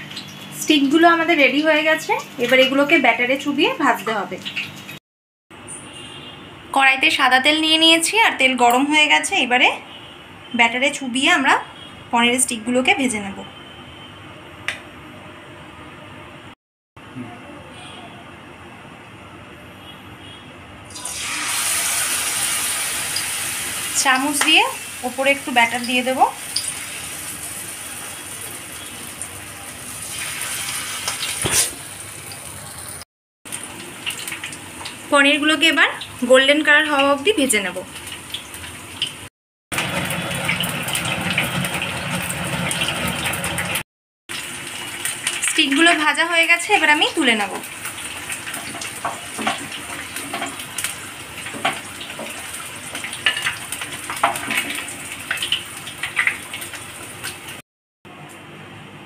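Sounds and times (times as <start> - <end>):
food sizzling in hot oil: 20.9 - 57.6.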